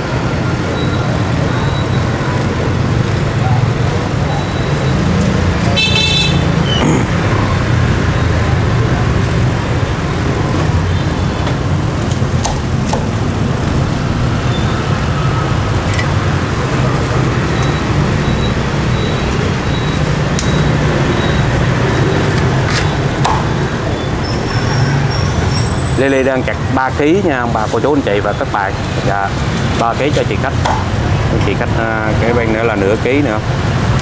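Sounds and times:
street traffic hum: 0.0s - 34.0s
cleaver striking chopping block: 23.2s - 23.5s.

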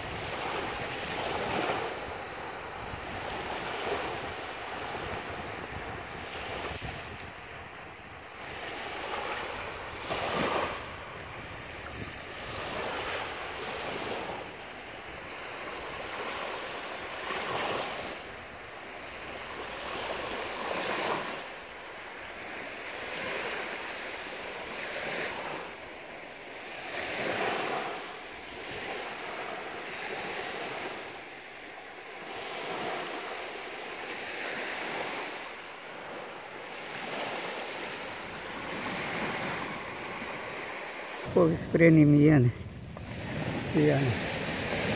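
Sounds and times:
small waves breaking on sand: 0.0s - 44.9s.

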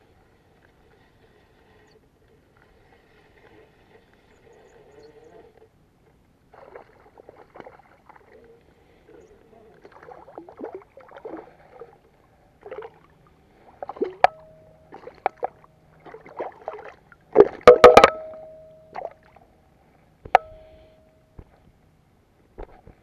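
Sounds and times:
water sloshing and dripping: 6.5s - 8.8s, 9.7s - 19.5s
fish splashing and thrashing: 13.7s - 19.3s
sharp knocks with ringing: 17.7s - 18.8s.

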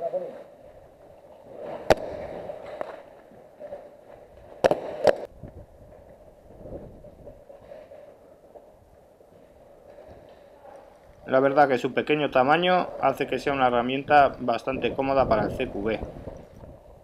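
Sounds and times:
sharp cracks: 1.7s - 3.2s, 4.5s - 5.3s.

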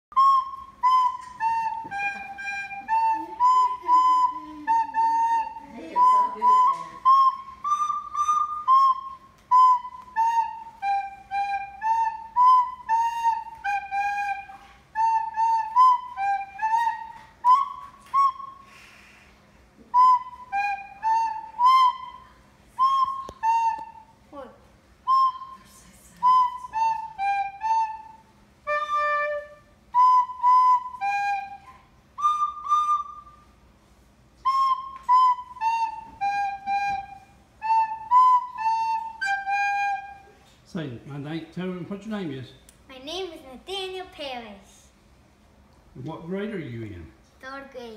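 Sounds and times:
recorder playing a tune: 0.1s - 18.8s, 19.9s - 24.2s, 25.0s - 33.6s, 34.4s - 40.4s.

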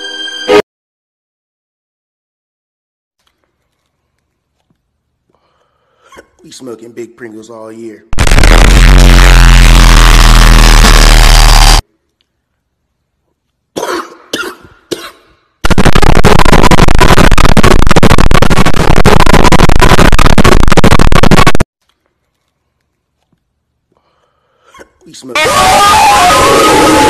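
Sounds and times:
loud distorted noise blast: 8.2s - 11.8s, 15.6s - 21.7s
man coughing: 13.8s - 15.4s.

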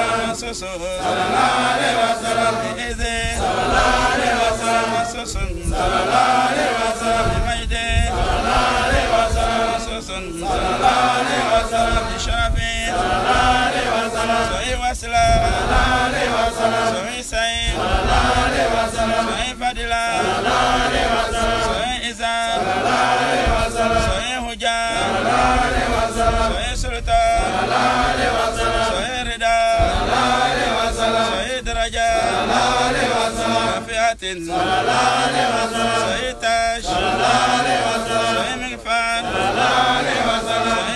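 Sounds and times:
man chanting: 0.0s - 40.9s.

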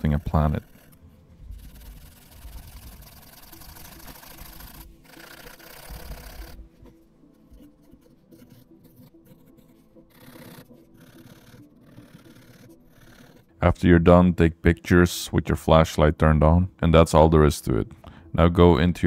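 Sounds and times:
pen scribbling on paper: 0.0s - 13.6s.

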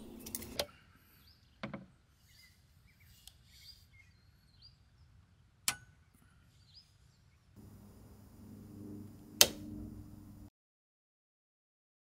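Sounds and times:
faint bird chirps: 0.1s - 5.2s
sharp click: 9.2s - 10.0s.

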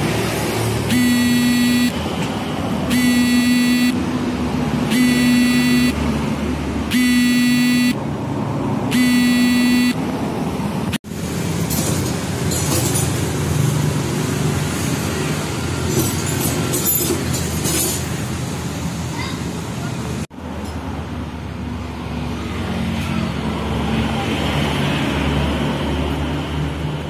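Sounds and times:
steady background noise: 0.0s - 27.0s
horn-like beeps: 0.9s - 2.0s, 2.9s - 4.0s, 4.9s - 6.2s, 6.9s - 8.0s, 8.9s - 10.0s.

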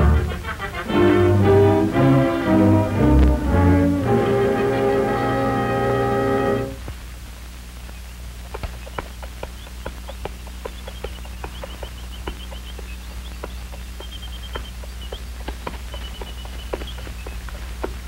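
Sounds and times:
low film soundtrack hum: 0.0s - 18.0s.

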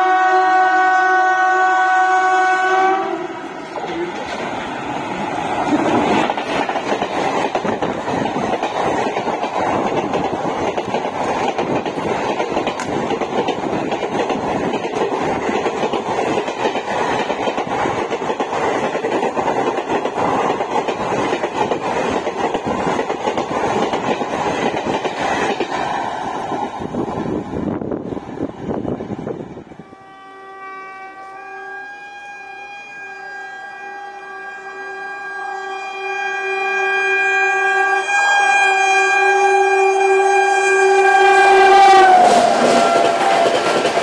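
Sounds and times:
train passing at speed: 0.0s - 44.0s
wheels clacking over rail joints: 3.4s - 26.8s, 41.8s - 44.0s.

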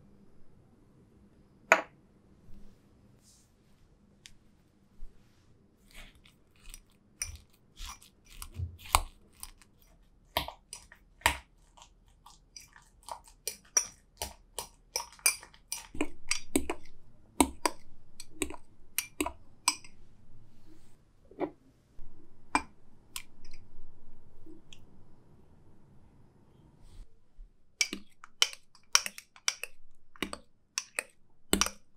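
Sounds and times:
soft wet squishing: 4.2s - 21.6s.

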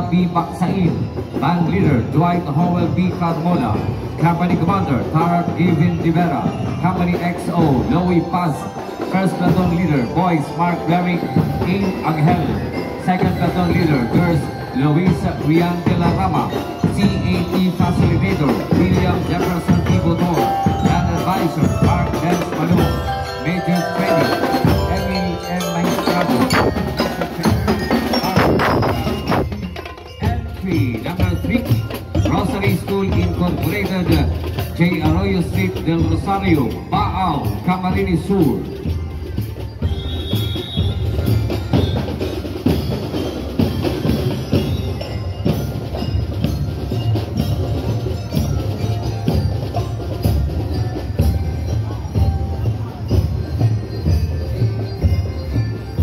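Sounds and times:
bell lyres struck with mallets: 0.0s - 56.0s
marching band playing: 0.1s - 56.0s
bass drum beats: 11.3s - 56.0s.

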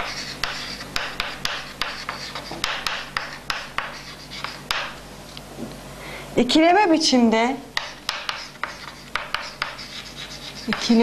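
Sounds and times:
chalk writing on chalkboard: 0.0s - 5.0s, 7.8s - 11.0s.

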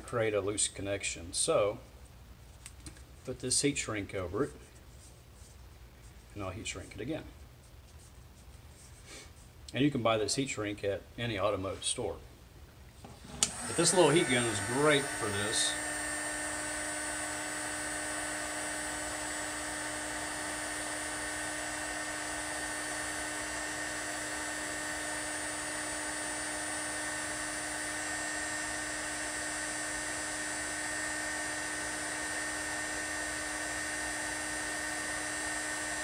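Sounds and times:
heat gun whining: 13.1s - 36.0s.

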